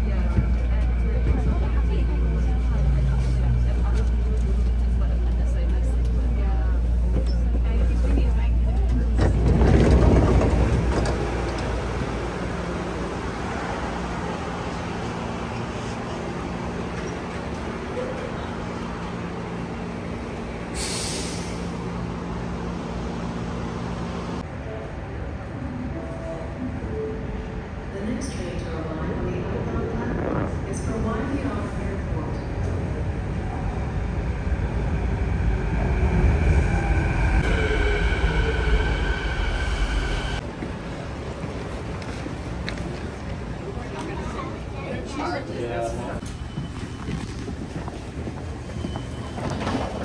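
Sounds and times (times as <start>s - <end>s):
train wheels rumbling on rails: 0.0s - 24.5s
train high whine: 33.8s - 41.2s.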